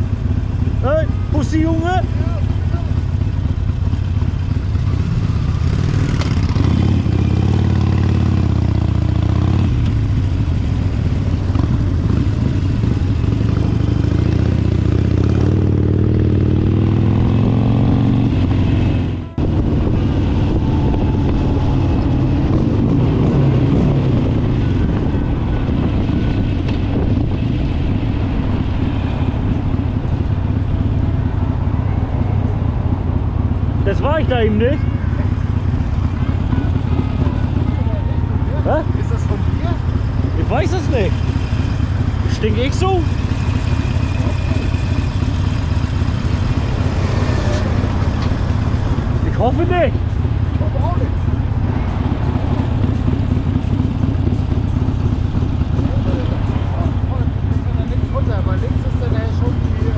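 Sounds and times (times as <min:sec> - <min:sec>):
motorcycle engine running: 0:00.0 - 0:59.9
wind noise on microphone: 0:15.8 - 0:33.7.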